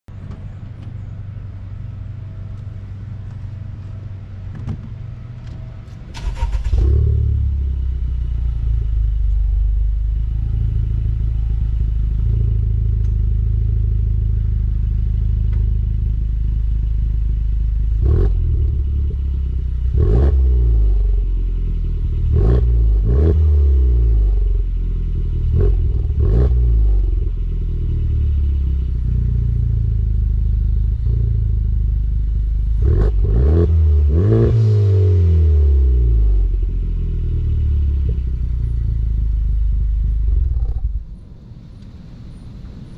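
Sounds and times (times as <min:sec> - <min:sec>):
car engine idling: 0:00.1 - 0:34.4, 0:35.2 - 0:42.9
engine revving: 0:06.2 - 0:08.2, 0:17.8 - 0:21.3, 0:22.0 - 0:24.5, 0:25.4 - 0:27.4, 0:28.9 - 0:36.7.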